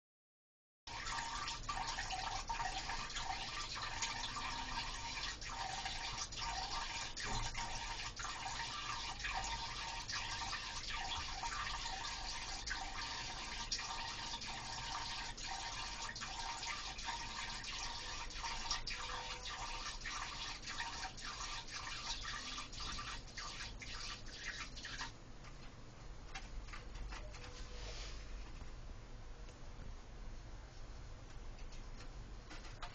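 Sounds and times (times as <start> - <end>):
liquid trickling into toilet water: 0.9 - 25.2.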